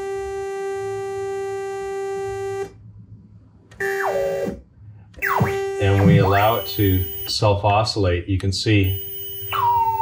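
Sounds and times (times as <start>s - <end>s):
synthesizer note: 5.2s - 7.3s.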